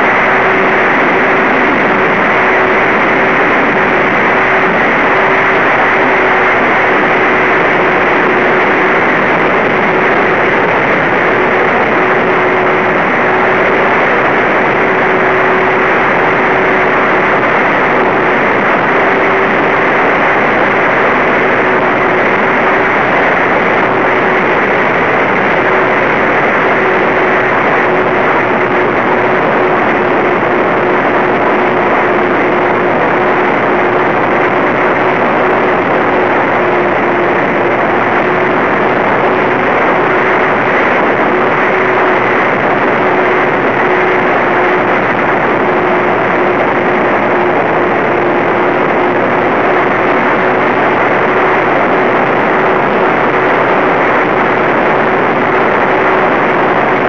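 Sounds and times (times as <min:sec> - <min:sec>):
electric motors and propellers: 0:00.0 - 0:57.0
steady hum: 0:00.0 - 0:57.0
wind noise rushing: 0:00.0 - 0:57.0.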